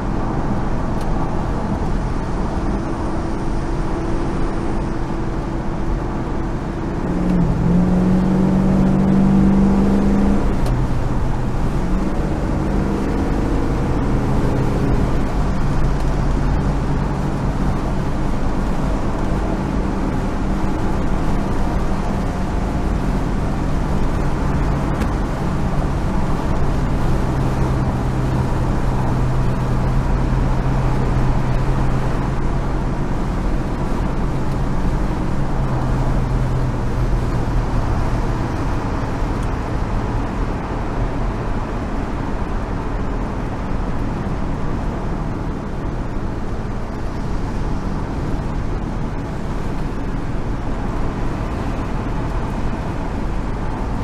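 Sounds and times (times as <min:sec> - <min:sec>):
car engine drone: 0:00.0 - 0:54.0.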